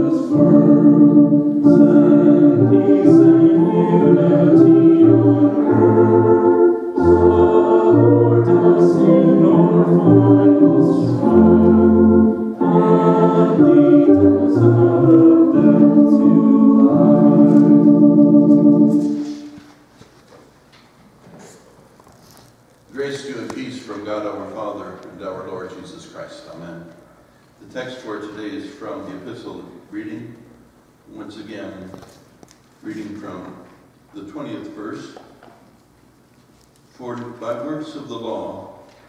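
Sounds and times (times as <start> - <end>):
church organ playing hymn: 0.0 - 19.8.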